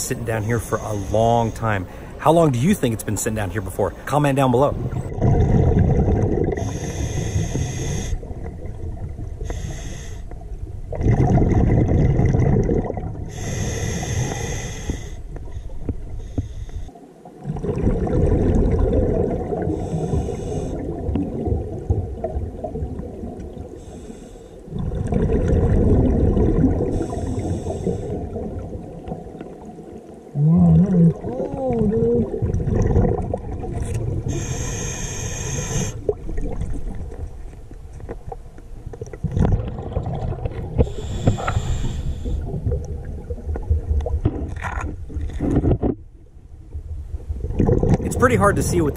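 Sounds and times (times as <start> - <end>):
bubbling exhales: 4.8 - 8.5, 10.9 - 15.1, 24.7 - 28.8, 30.3 - 37.0
regulator hissing inhales: 6.6 - 8.2, 9.4 - 10.3, 13.3 - 15.2, 19.8 - 20.8, 23.8 - 24.6, 26.9 - 28.2, 34.3 - 36.0, 40.8 - 42.5.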